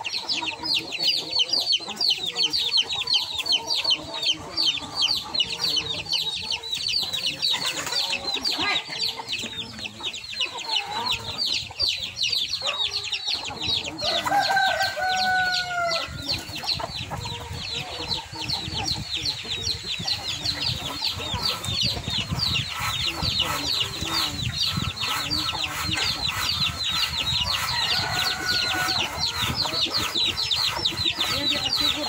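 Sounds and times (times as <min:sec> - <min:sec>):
rooster crowing: 0:14.0 - 0:16.2, 0:27.7 - 0:29.3.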